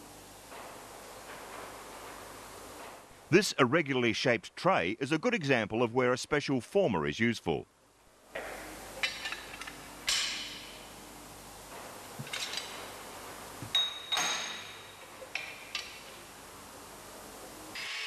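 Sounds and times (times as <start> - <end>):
light metal clinks and knocks: 13.6 - 16.0
metal ringing ping: 13.8 - 14.8.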